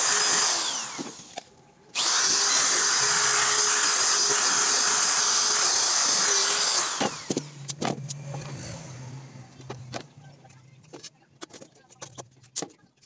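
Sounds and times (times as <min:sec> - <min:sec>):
electric drill whining: 0:00.0 - 0:01.3, 0:02.0 - 0:07.6.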